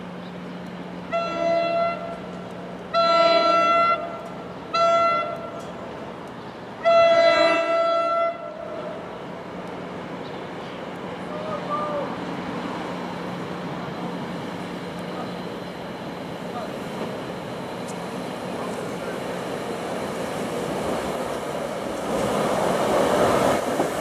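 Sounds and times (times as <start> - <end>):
train horn blasts: 1.1 - 2.2, 2.9 - 5.6, 6.8 - 8.6.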